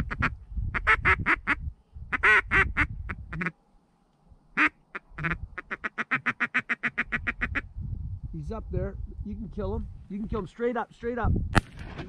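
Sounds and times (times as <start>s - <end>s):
duck quacking: 0.0s - 3.5s, 4.6s - 7.6s.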